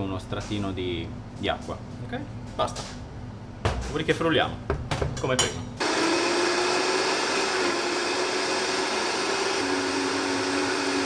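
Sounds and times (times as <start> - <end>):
blender motor whine: 5.8 - 11.0.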